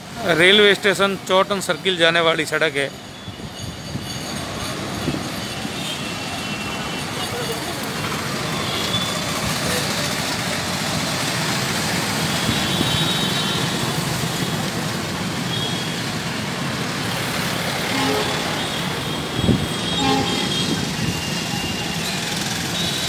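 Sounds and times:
street traffic passing: 0.0s - 23.0s
faint vehicle horns: 17.8s - 23.0s.

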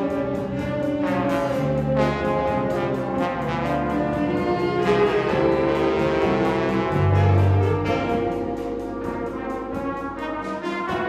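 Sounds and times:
brass band playing slow chords: 0.0s - 11.0s.

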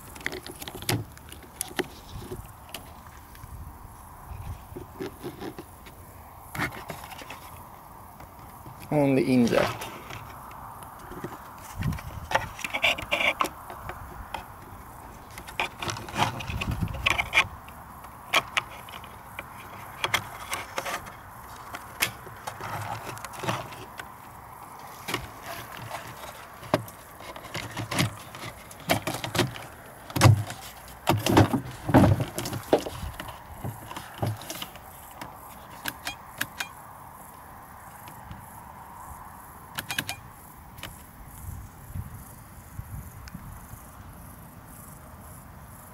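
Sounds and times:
heavier plastic knocks: 28.8s - 34.6s.

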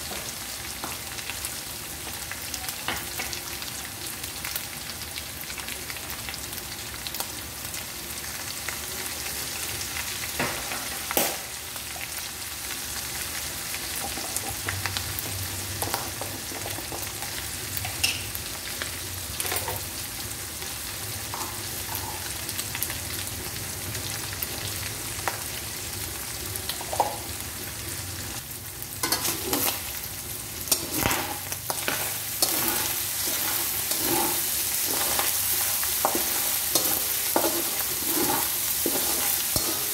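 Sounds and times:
meat sizzling in oil: 0.0s - 39.9s
metal spatula scraping wok: 29.0s - 30.0s, 30.7s - 39.9s.

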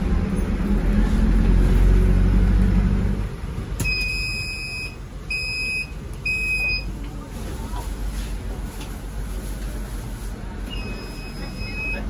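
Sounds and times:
bus engine rumbling: 0.0s - 12.0s
bus door warning beep: 3.8s - 7.0s, 10.6s - 12.0s.

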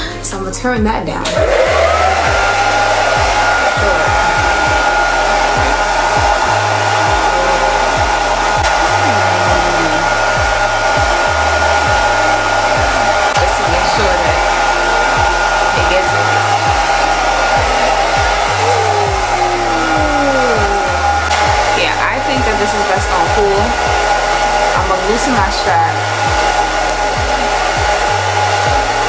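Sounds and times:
hair dryer running: 1.2s - 29.0s.

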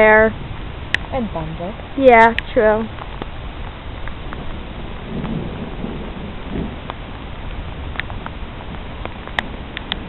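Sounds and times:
raindrops ticking: 0.0s - 10.0s
steady rain: 0.0s - 10.0s
thunder rumbling: 0.0s - 10.0s.

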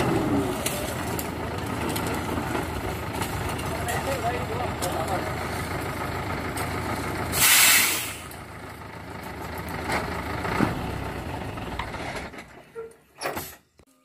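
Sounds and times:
truck engine running: 0.0s - 13.2s
loud hiss: 7.3s - 8.3s.

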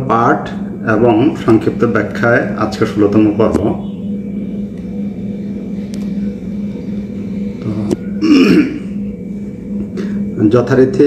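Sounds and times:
low electrical hum: 0.0s - 11.0s
man clearing throat: 7.8s - 8.9s.

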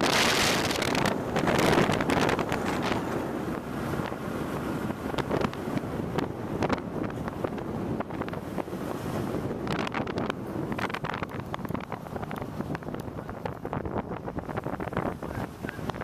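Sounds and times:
vehicle driving on paved road: 0.0s - 16.0s
wind buffeting microphone: 0.0s - 16.0s.

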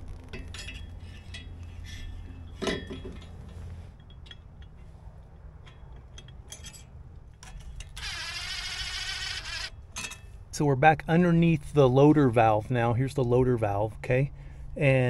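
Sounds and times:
steel bolts clinking: 0.3s - 10.4s.

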